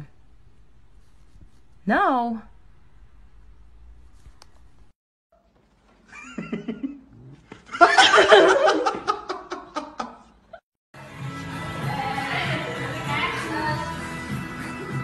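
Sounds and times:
person laughing: 6.1s - 7.0s, 7.6s - 10.4s
music: 11.0s - 15.0s.

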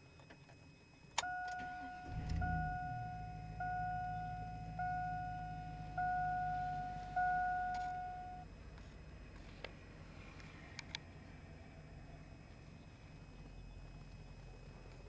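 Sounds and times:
dashboard warning chime: 1.2s - 8.5s
car engine idling: 1.5s - 15.0s.

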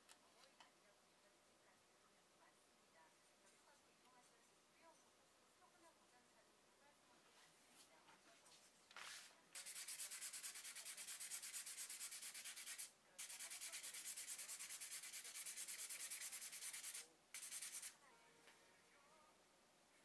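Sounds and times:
sandpaper sanding wood: 9.6s - 17.9s.

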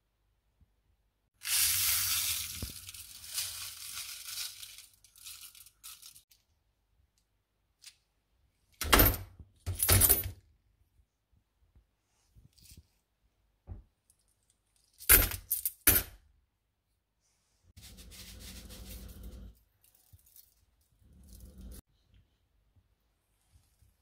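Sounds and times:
coins clattering onto foil: 1.4s - 6.2s
powder poured onto foil: 1.4s - 6.3s, 17.8s - 21.8s.

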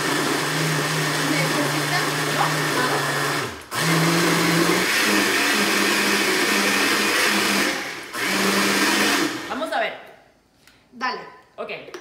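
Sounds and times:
blender motor running: 0.0s - 9.5s.

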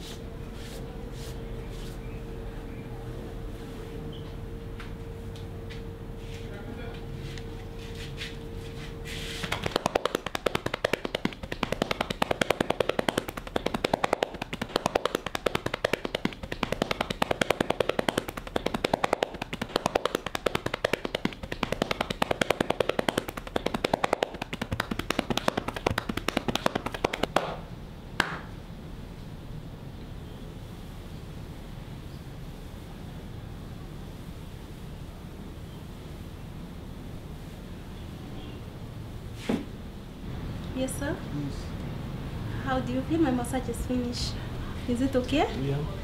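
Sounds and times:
hands slapping a back: 9.2s - 28.5s.

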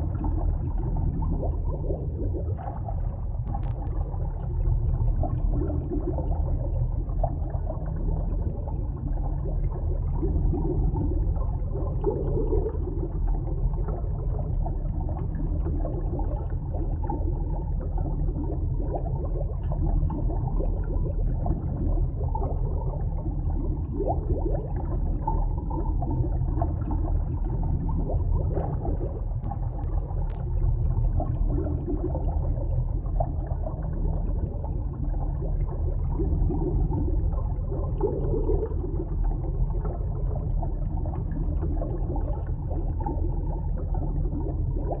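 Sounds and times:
gurgling water: 0.0s - 45.0s
muffled underwater rumble: 0.0s - 45.0s
faint click: 3.5s - 4.0s, 29.4s - 30.5s.

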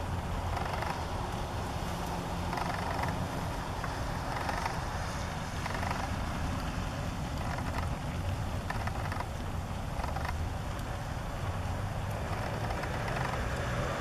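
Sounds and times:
faint ticks: 0.5s - 3.2s, 3.8s - 6.7s, 7.3s - 8.0s, 8.6s - 11.0s, 12.0s - 13.8s.

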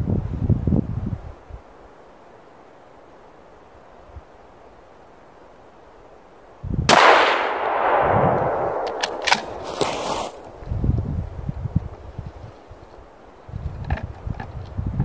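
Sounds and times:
rifle shot echoing: 6.9s - 10.6s
sharp clicks: 8.3s - 9.6s.

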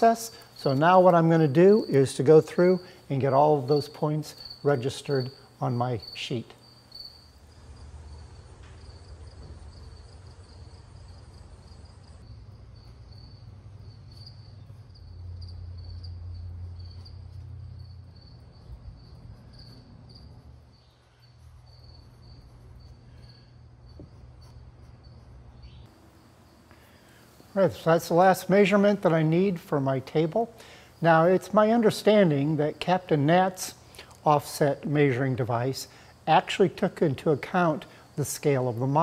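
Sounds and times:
insect trill: 0.0s - 39.0s
low hum: 7.2s - 27.2s.

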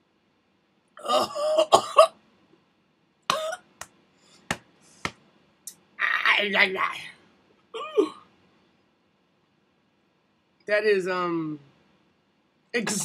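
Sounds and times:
woman coughing: 1.0s - 2.2s, 3.3s - 3.7s.

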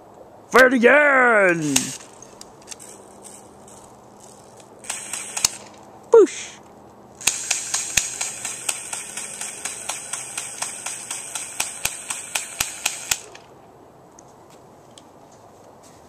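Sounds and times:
airsoft gun firing rapid shots: 4.8s - 5.7s, 7.2s - 13.4s
steady hiss: 7.2s - 13.5s.

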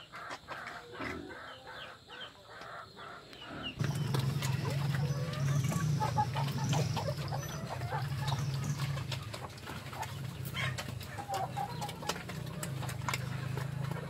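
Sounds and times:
chickens clucking: 0.0s - 14.0s
pigs chewing and smacking: 3.8s - 14.0s.

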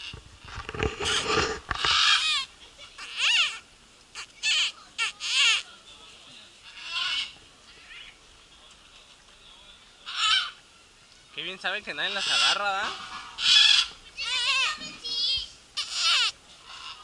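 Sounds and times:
macaws squawking: 0.8s - 5.7s, 6.6s - 7.4s, 10.0s - 10.6s, 11.9s - 17.0s.

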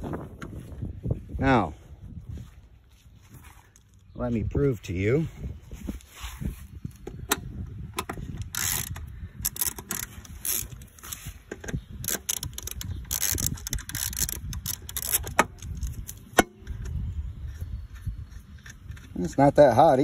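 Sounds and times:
ratchet clicking: 8.0s - 19.4s.

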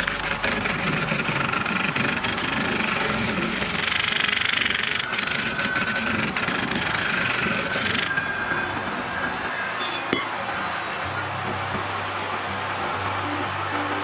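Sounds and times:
turning tool cutting wood: 0.0s - 11.0s
wood lathe running: 0.0s - 14.0s.

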